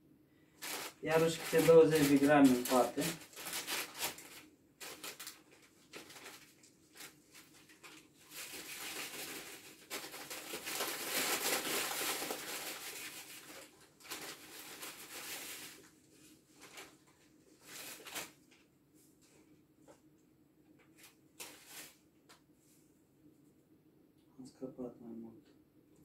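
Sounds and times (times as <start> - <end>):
paper bag crinkling: 0.6 - 18.7, 20.9 - 22.0.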